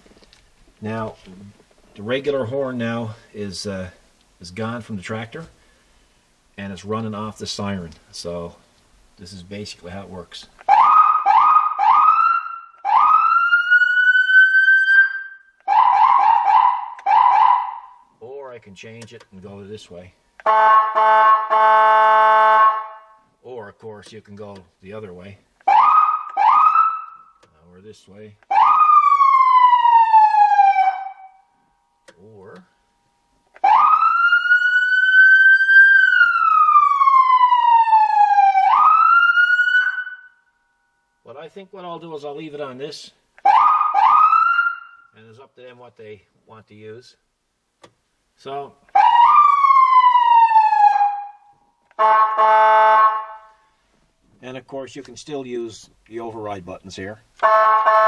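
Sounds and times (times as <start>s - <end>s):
electronic siren whooping and wailing: 10.7s - 17.9s, 20.5s - 23.0s, 25.7s - 27.4s, 28.5s - 31.4s, 33.6s - 40.4s, 43.4s - 45.1s, 48.9s - 53.5s.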